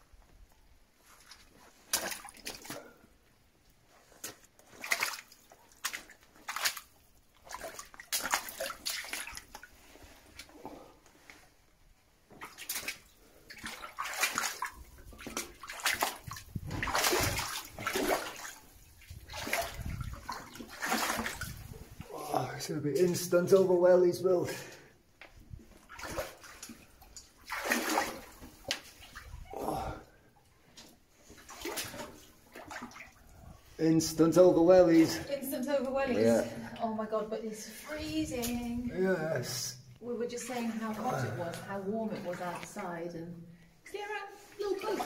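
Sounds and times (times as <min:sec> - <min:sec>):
boots wading and splashing in water: 0:01.0 - 0:03.2, 0:03.8 - 0:11.4, 0:12.2 - 0:22.1, 0:25.4 - 0:30.0, 0:30.8 - 0:33.6.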